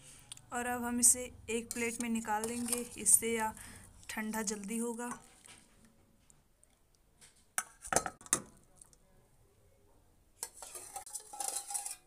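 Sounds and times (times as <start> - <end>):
spoon clinking against pot: 1.6 - 3.0, 10.4 - 12.0
spoon scraping and rattling: 1.6 - 3.2, 10.4 - 12.0.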